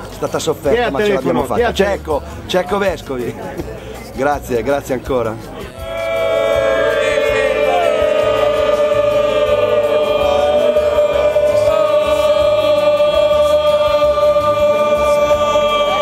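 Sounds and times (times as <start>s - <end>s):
choir singing long notes: 5.8s - 16.0s.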